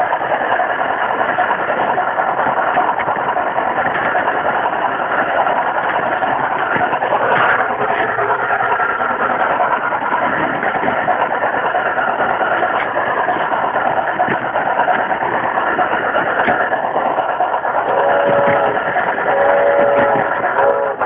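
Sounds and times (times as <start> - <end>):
model train rumbling on track: 0.0 - 21.0
train whistle blasts: 17.9 - 21.0.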